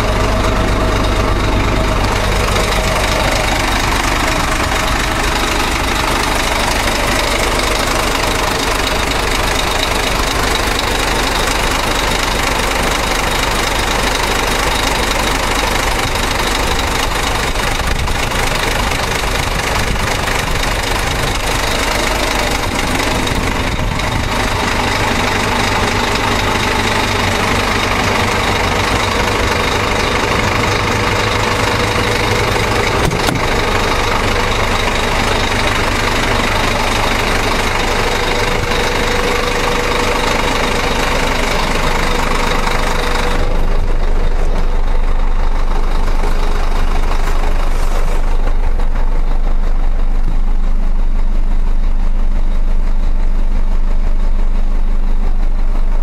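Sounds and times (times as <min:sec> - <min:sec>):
pickup engine running: 0:00.0 - 0:56.0
tyre and road noise: 0:15.9 - 0:50.5.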